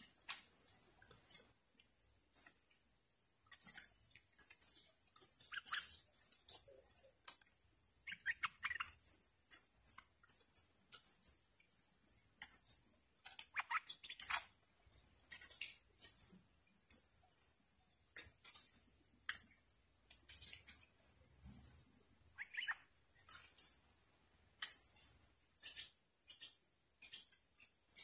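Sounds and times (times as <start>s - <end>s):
birds chirping: 0.0s - 28.0s.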